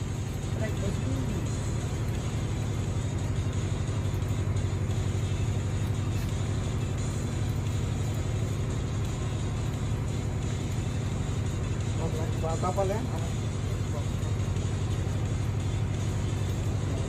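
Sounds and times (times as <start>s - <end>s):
ship machinery humming: 0.0s - 17.0s.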